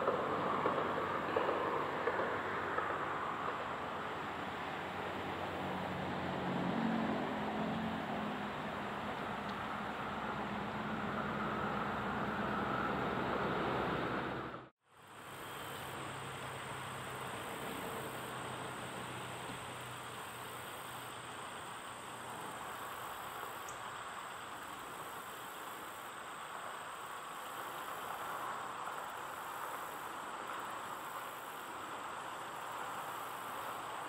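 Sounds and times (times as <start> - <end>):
steady outdoor noise: 0.0 - 34.0
high insect drone: 14.9 - 34.0.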